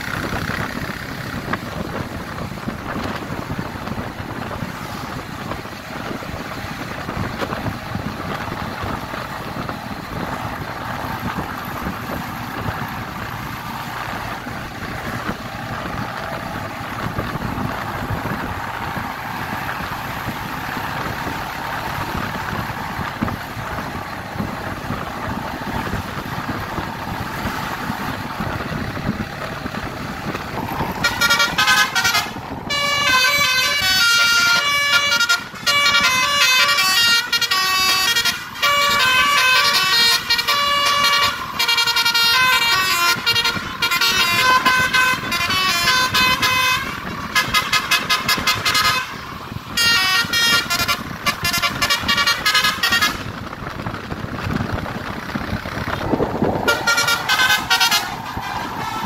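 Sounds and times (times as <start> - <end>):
bus engine running: 0.0 - 59.0
road noise: 0.0 - 59.0
bus horn playing melody: 17.0 - 53.5, 55.9 - 59.0.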